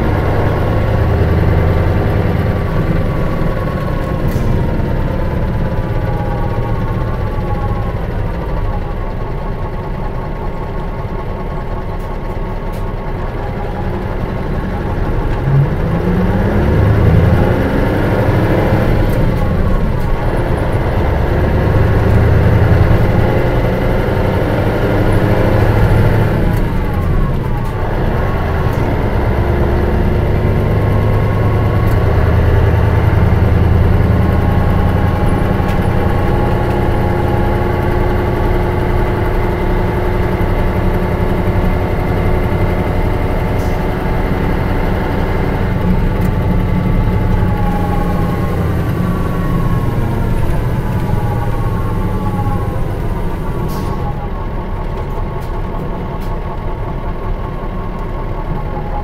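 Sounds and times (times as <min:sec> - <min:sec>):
bus diesel engine running: 0:00.0 - 0:59.0.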